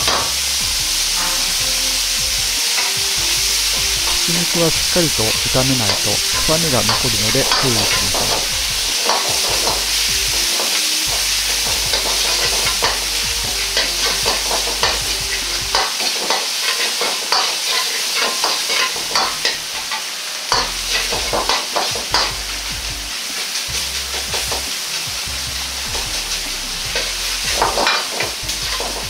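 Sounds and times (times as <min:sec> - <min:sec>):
meat sizzling in a wok: 0:00.0 - 0:29.0.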